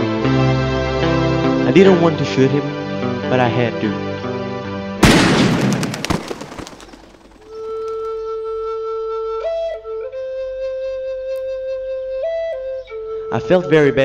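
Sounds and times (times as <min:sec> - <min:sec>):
background music: 0:00.0 - 0:05.6
handgun shot: 0:05.0 - 0:08.0
slow solo flute melody: 0:08.0 - 0:14.0.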